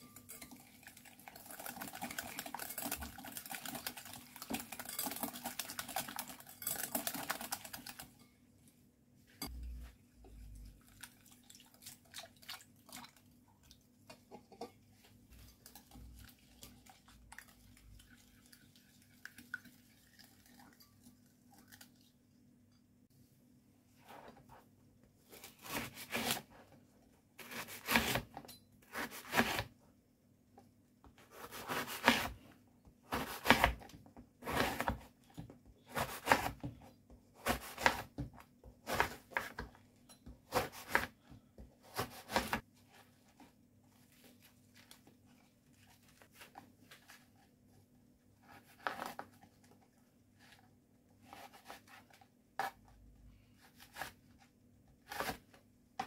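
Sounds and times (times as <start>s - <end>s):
knife cutting bread crust: 25.3s - 26.5s, 27.4s - 28.3s, 28.9s - 29.7s, 31.2s - 32.4s, 33.1s - 35.1s, 35.8s - 36.8s, 37.4s - 39.7s, 40.4s - 42.6s, 55.0s - 55.6s.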